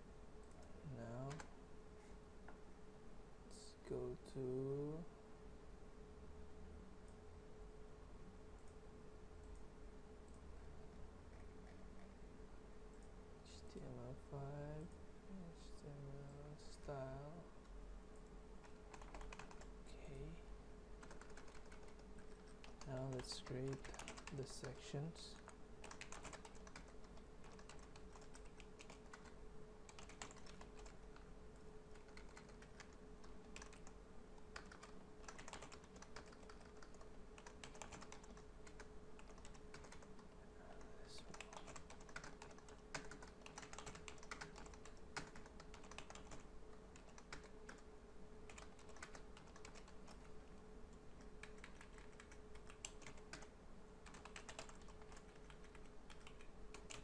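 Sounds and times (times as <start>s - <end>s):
faint steady hum: 0.0s - 57.0s
computer keyboard typing: 0.4s - 1.5s, 18.6s - 19.8s, 21.0s - 31.3s, 31.9s - 50.5s, 51.2s - 57.0s.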